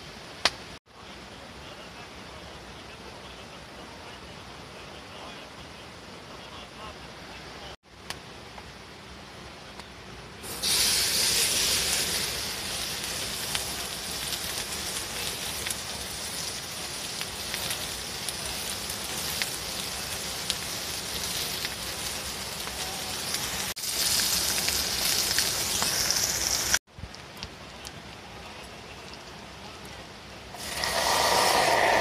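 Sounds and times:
meat sizzling in hot oil: 10.4 - 26.8, 30.6 - 32.0.

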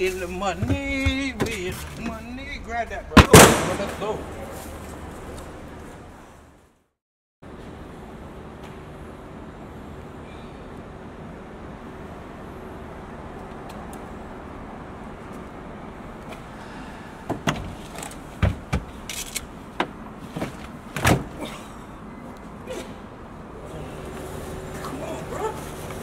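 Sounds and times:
steady background hum: 0.0 - 6.7, 7.4 - 26.0
car hatch clunks and knocks: 18.4 - 18.9.

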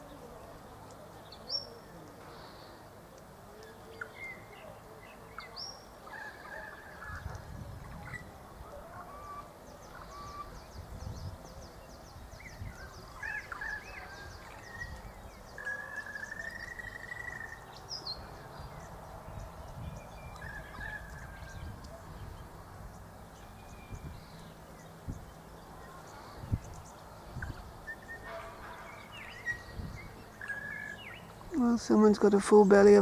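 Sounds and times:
birds whistling calls: 9.0 - 31.5.

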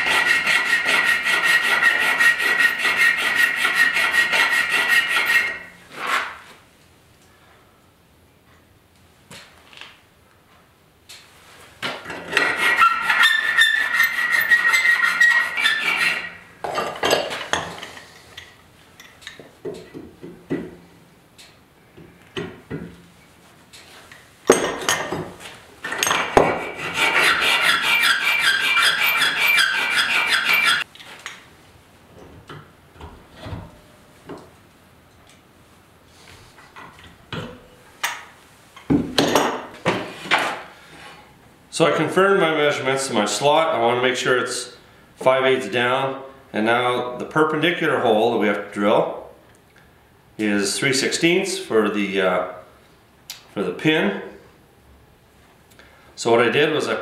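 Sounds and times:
metal rasping against metal: 0.0 - 6.4, 12.1 - 16.5, 25.9 - 30.9.

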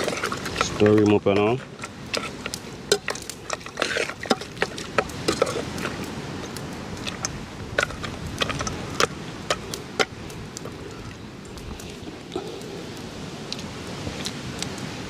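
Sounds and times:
clinks against metal pot: 0.0 - 6.0.

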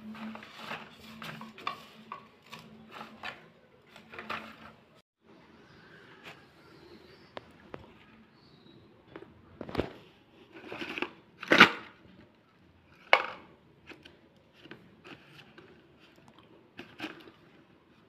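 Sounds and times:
cardboard scraping rustles: 0.0 - 4.8.

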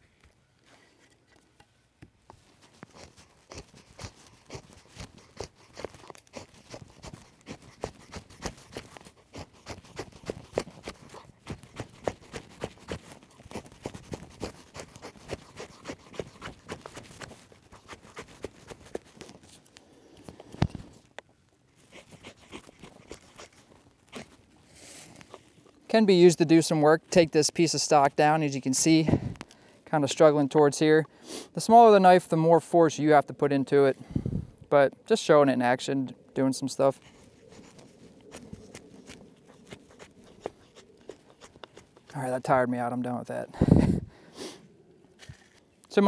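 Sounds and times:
knife shaving wooden stick: 2.4 - 28.8, 36.4 - 43.2, 45.1 - 46.0.

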